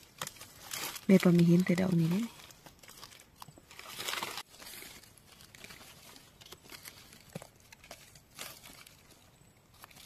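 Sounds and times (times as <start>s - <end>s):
rustling in leaf litter: 0.0s - 10.0s.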